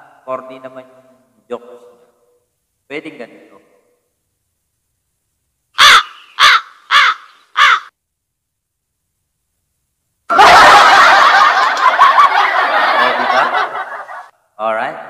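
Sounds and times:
crow cawing sound effect: 0:05.8 - 0:08.0
recorded laughter: 0:10.3 - 0:14.4.

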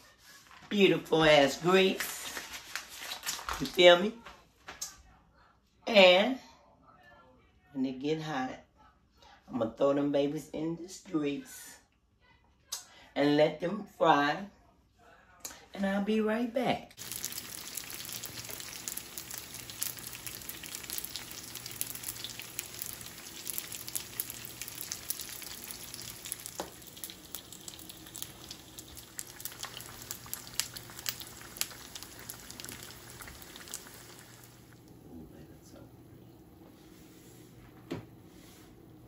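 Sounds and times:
food deep-frying with pops: 0:17.0 - 0:35.0.

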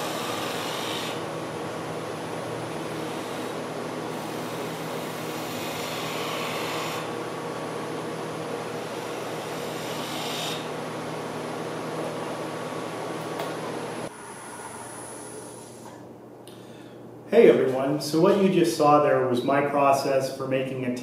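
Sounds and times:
lathe tool shaving wood: 0:00.0 - 0:10.9
lathe machine hum: 0:00.0 - 0:15.9.

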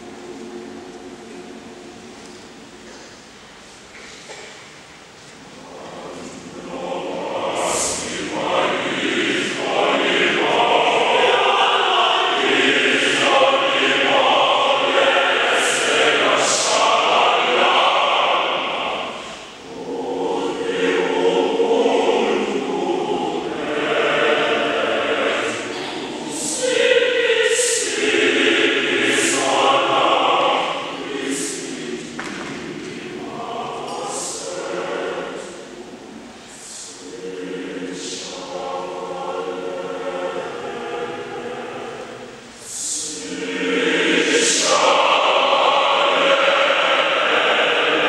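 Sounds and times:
choir singing: 0:00.0 - 0:03.0, 0:05.5 - 0:48.0.

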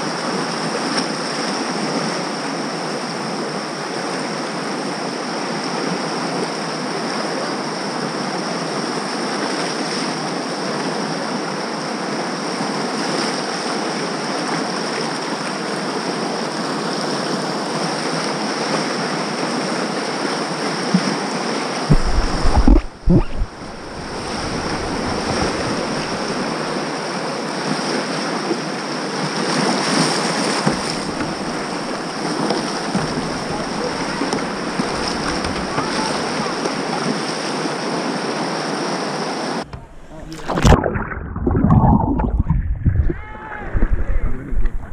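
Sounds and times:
whitewater rapid roaring: 0:12.6 - 0:44.9
wind buffeting on microphone: 0:21.9 - 0:26.6, 0:39.7 - 0:44.9.

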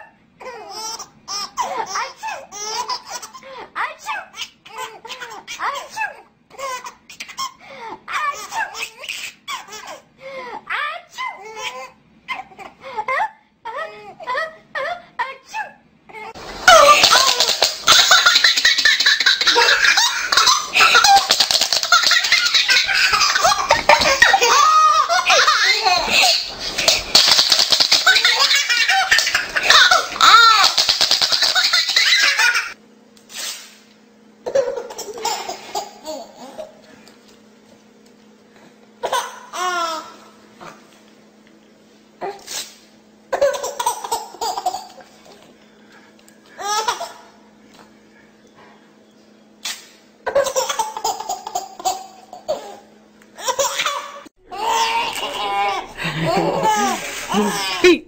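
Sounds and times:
baby laughing: 0:00.4 - 0:10.1, 0:11.1 - 0:14.3, 0:16.2 - 0:32.8, 0:34.4 - 0:36.8, 0:39.0 - 0:40.8, 0:43.3 - 0:45.4, 0:46.6 - 0:47.4, 0:50.2 - 0:58.0.

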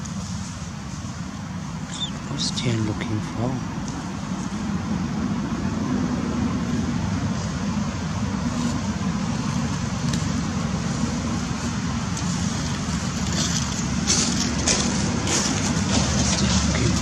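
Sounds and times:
low outdoor rumble: 0:00.0 - 0:17.0
dry leaves crackling: 0:06.5 - 0:17.0.

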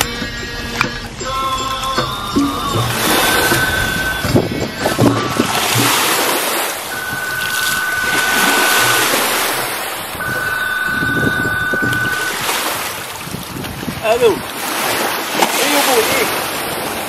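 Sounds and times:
small waves on shore: 0:00.0 - 0:17.0
wind on microphone: 0:02.3 - 0:15.4
mobile phone ringing: 0:06.8 - 0:12.9.

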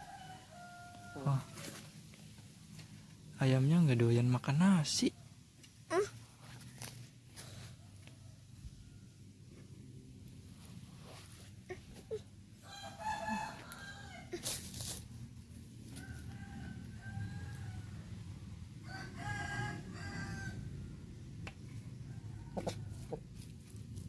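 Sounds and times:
rooster crowing: 0:00.0 - 0:01.8, 0:12.6 - 0:14.5, 0:15.8 - 0:21.0, 0:22.1 - 0:23.2.

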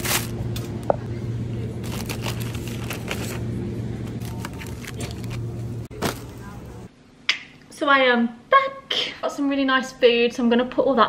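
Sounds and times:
steady low hum: 0:00.0 - 0:07.8
plastic packaging crinkling: 0:01.8 - 0:03.5, 0:04.2 - 0:06.6.

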